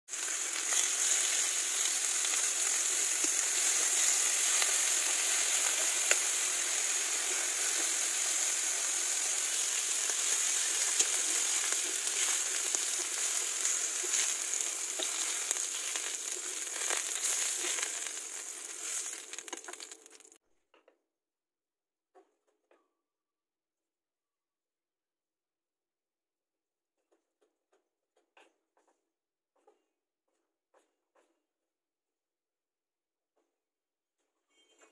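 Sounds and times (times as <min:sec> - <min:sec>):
pork sizzling in grill pan: 0:00.1 - 0:20.4.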